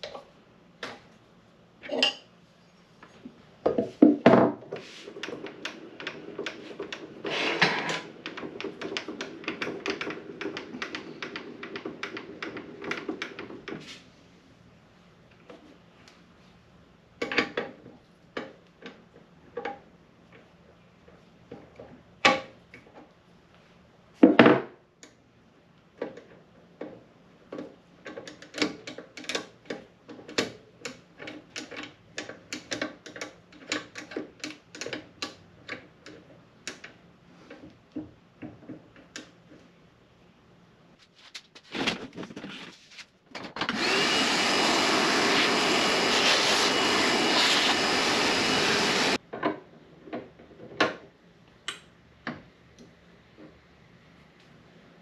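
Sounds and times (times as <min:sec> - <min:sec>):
irregular clicks and knocks: 0:03.7 - 0:13.8
rushing motor noise: 0:43.7 - 0:49.2.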